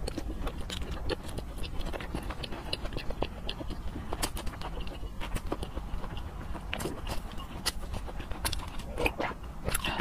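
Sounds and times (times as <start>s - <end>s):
person chewing food: 0.0s - 10.0s
steady low hum: 0.0s - 10.0s.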